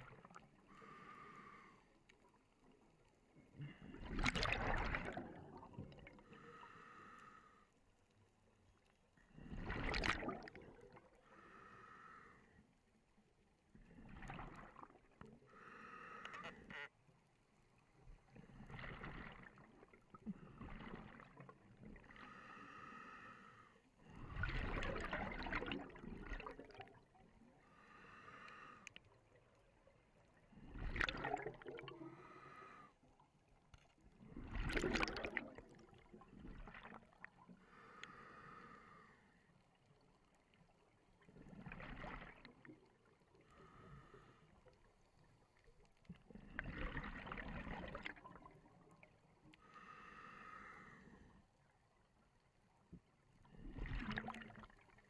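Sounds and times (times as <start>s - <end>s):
exhaled bubbles underwater: 3.5s - 6.4s, 9.3s - 11.2s, 13.8s - 15.1s, 18.4s - 22.1s, 24.0s - 27.6s, 30.3s - 32.5s, 34.1s - 37.5s, 41.0s - 43.9s, 46.2s - 49.4s, 53.4s - 55.0s.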